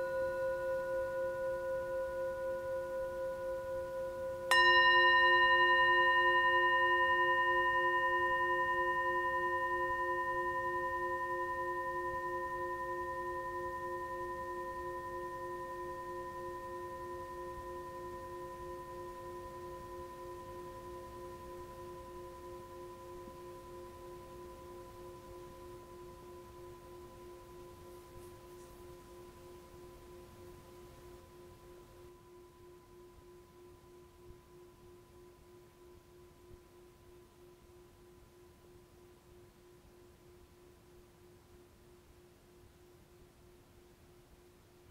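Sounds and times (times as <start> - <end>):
struck bell ringing: 4.5 - 14.0.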